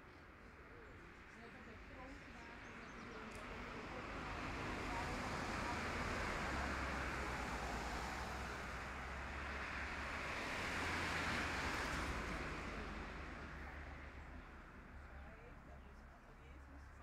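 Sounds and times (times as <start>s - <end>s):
motor vehicle passing: 2.9s - 16.0s.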